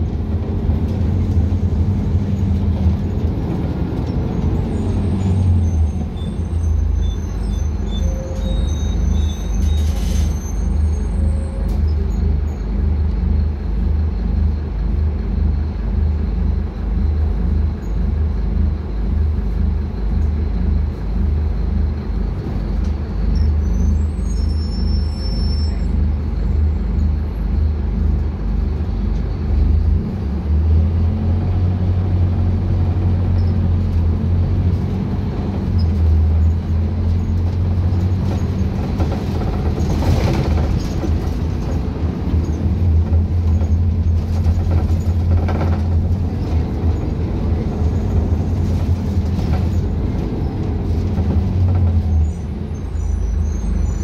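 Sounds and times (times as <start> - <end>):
bus diesel engine drone: 0.0 - 54.0
road noise: 0.0 - 54.0
faint high squeaks: 4.7 - 12.6, 23.3 - 26.8.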